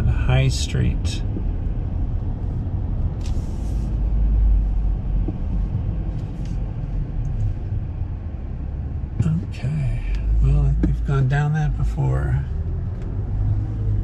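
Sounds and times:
car engine and road rumble: 0:00.0 - 0:14.0.

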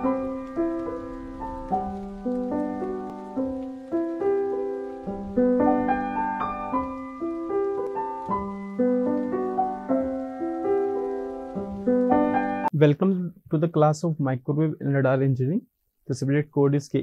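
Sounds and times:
piano notes and chords: 0:00.0 - 0:12.8.

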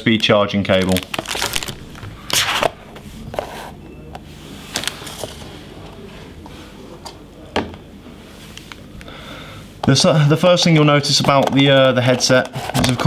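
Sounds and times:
plastic packaging rustling: 0:00.8 - 0:02.0.

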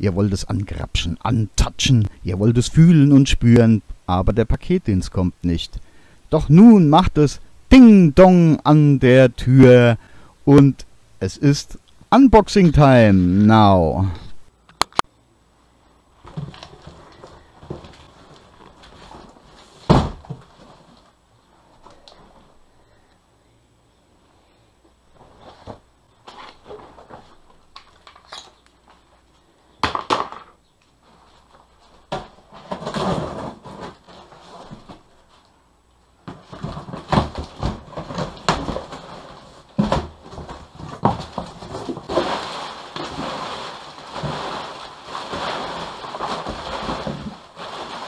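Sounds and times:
crumpled paper rustling: 0:16.2 - 0:21.2, 0:36.3 - 0:48.0
cardboard and tape scraping: 0:31.0 - 0:35.5, 0:36.3 - 0:48.0.

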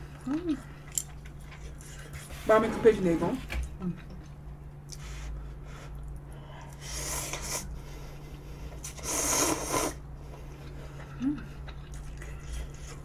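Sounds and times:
person slurping noodles: 0:08.8 - 0:10.0.

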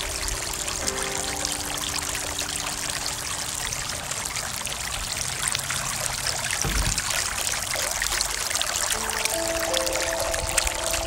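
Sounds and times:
fountain water splashing: 0:00.0 - 0:11.0
low thump: 0:06.6 - 0:07.5.

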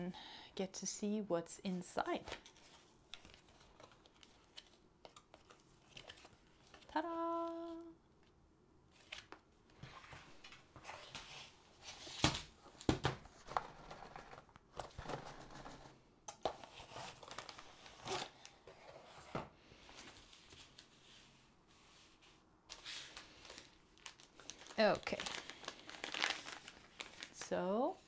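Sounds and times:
plastic and paper crinkling: 0:02.2 - 0:07.8, 0:16.4 - 0:21.0, 0:22.7 - 0:28.0.

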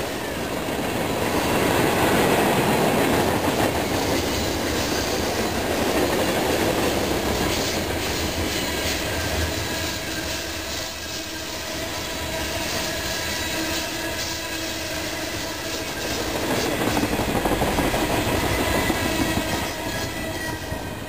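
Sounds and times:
clickety-clack over rail joints: 0:00.0 - 0:21.0
train wheels rumbling on rails: 0:00.0 - 0:21.0
faint wheel squeal: 0:07.4 - 0:17.2, 0:17.9 - 0:21.0.

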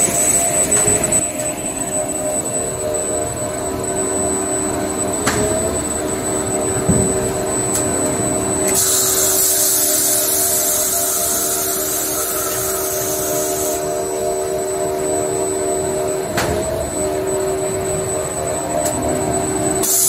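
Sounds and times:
machine hum: 0:00.0 - 0:20.0
thump: 0:06.9 - 0:07.2.

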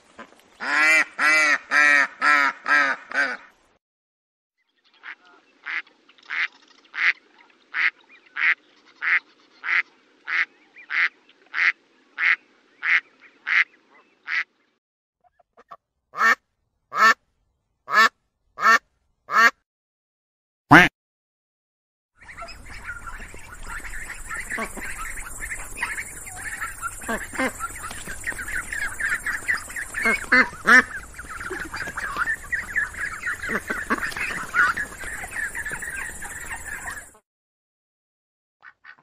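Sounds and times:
duck quacking: 0:00.6 - 0:03.5, 0:07.8 - 0:13.7, 0:14.3 - 0:14.5, 0:15.6 - 0:17.2, 0:17.9 - 0:19.6, 0:20.7 - 0:20.9, 0:22.2 - 0:37.2.

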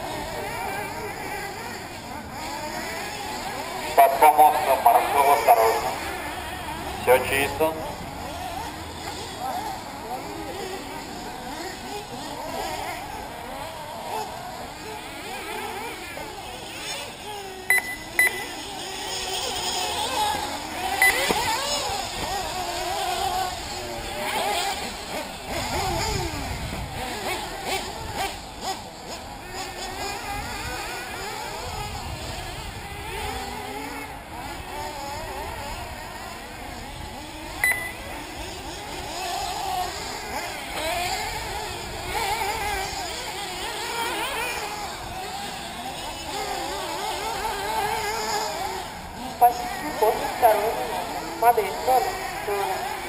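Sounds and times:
rc car engines whining: 0:00.0 - 0:53.0
short sharp high beeps: 0:17.7 - 0:18.6, 0:21.0 - 0:21.3, 0:37.6 - 0:38.0.

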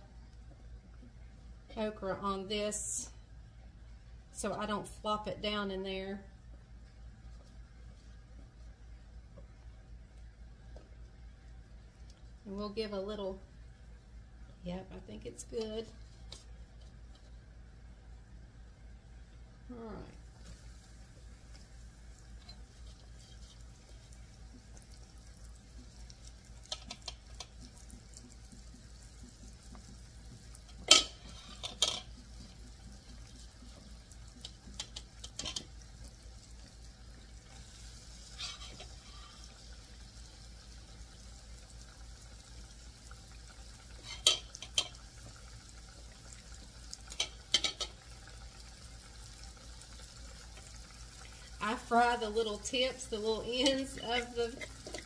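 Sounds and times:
steady low hum: 0:00.0 - 0:55.0
okra sizzling in oil: 0:13.6 - 0:55.0
metal utensil scraping a pan: 0:30.7 - 0:32.1, 0:38.3 - 0:39.4, 0:44.0 - 0:44.9.

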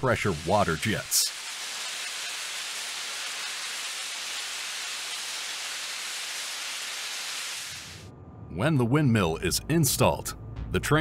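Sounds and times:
high-pressure jet hissing on steel: 0:00.0 - 0:08.0.

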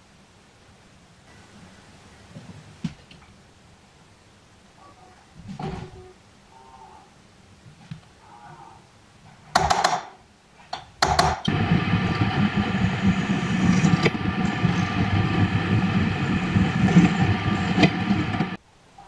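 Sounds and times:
center punch tapping metal: 0:09.6 - 0:10.2, 0:10.8 - 0:11.5
drill press cutting steel: 0:11.0 - 0:18.6.

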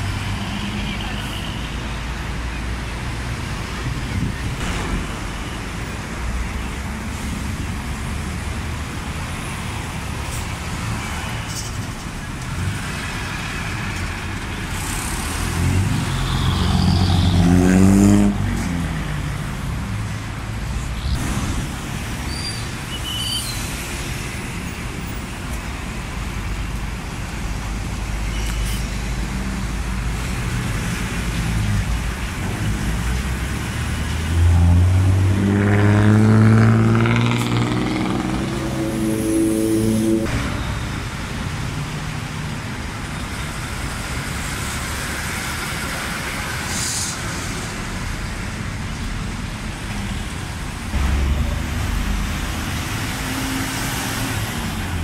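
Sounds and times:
road traffic passing: 0:00.0 - 0:55.0
bus engine revving: 0:32.2 - 0:41.8, 0:50.3 - 0:55.0.

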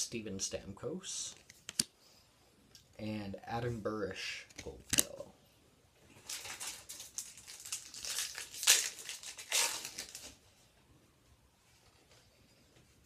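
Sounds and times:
plastic wrapper tearing and crinkling: 0:06.2 - 0:10.4.

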